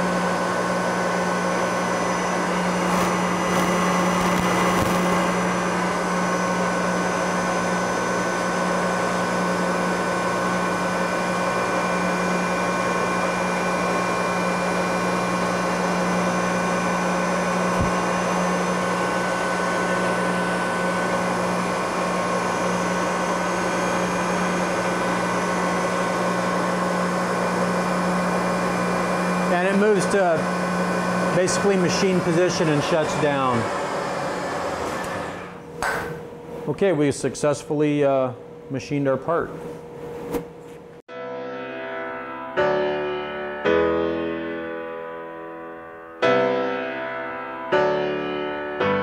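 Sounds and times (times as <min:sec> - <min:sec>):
mill spindle motor whine: 0:00.0 - 0:41.0
end mill cutting metal: 0:00.9 - 0:35.6.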